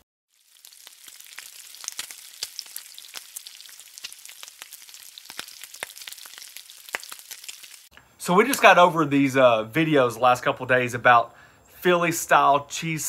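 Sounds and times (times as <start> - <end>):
food sizzling on a griddle: 0.3 - 7.9.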